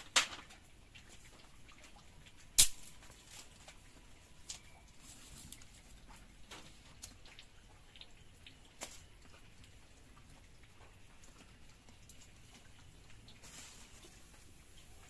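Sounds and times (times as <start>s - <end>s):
dry sticks crackling in fire: 0.0s - 15.0s
stick snapping: 2.6s - 2.9s
soft hiss: 12.4s - 15.0s.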